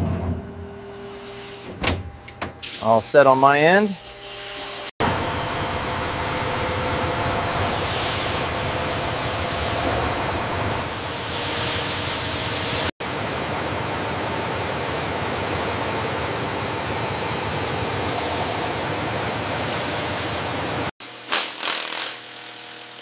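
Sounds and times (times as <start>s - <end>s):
industrial hiss and rumble: 2.7s - 16.5s.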